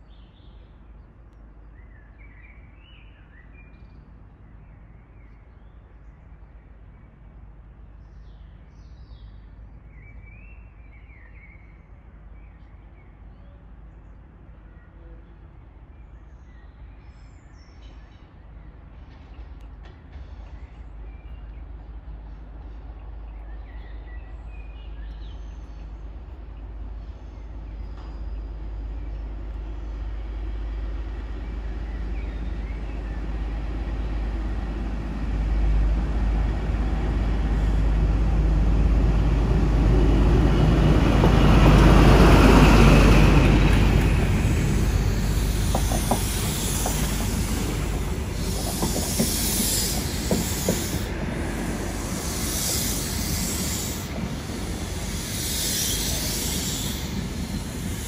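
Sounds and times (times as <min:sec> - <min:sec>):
diesel train engine rumble: 0:17.8 - 0:58.0
train wheel clicks: 0:40.7 - 0:58.0
high hiss: 0:42.0 - 0:58.0.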